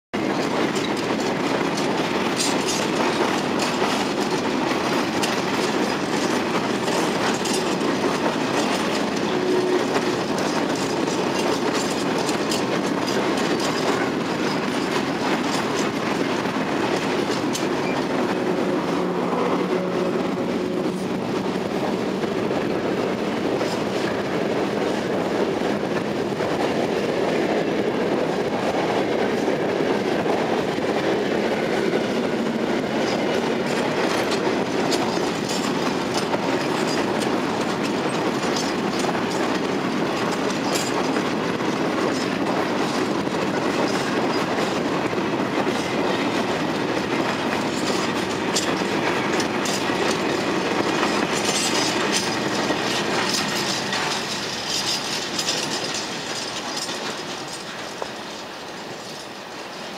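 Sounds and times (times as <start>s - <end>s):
train wheels clickety-clack: 0.1s - 59.9s.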